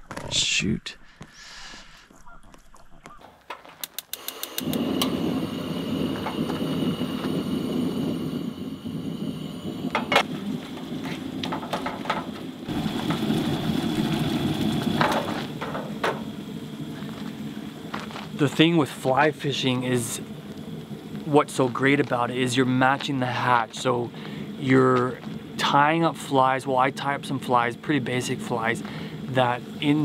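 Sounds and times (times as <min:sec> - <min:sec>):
igniter clicks: 0:03.8 - 0:08.5
gas burner roaring: 0:03.8 - 0:30.0.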